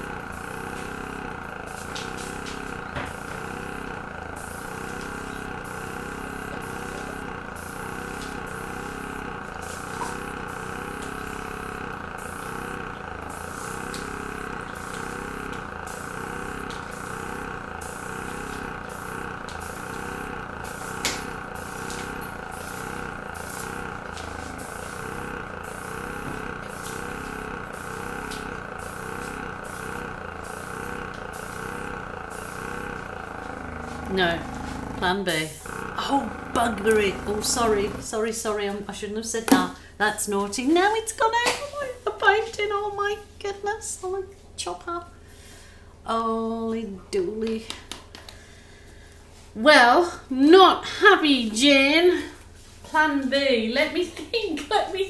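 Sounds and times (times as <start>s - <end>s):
airbrush compressor humming: 0.0s - 39.8s.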